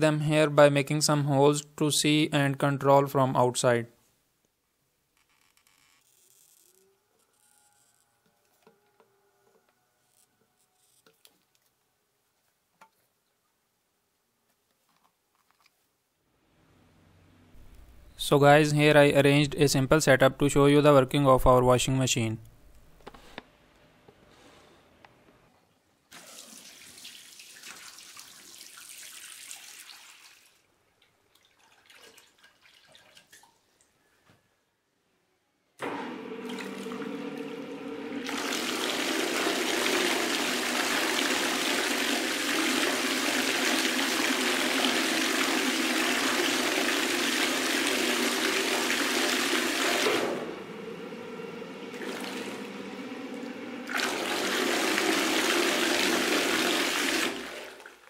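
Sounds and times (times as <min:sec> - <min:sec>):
washing machine churning water: 0:26.1 - 0:30.3, 0:31.1 - 0:33.6, 0:35.8 - 0:58.0
water filling tub: 0:26.1 - 0:33.8, 0:35.8 - 0:58.0
low motor hum: 0:35.8 - 0:41.6, 0:48.1 - 0:57.5.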